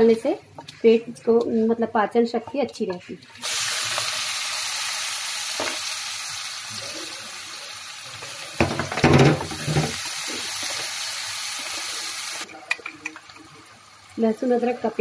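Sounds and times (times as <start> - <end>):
onions sizzling in oil: 3.1 - 15.0.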